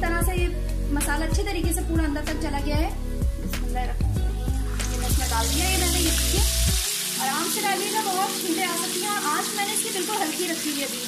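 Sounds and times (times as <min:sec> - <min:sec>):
oil sizzling and bubbling: 0:04.1 - 0:11.0.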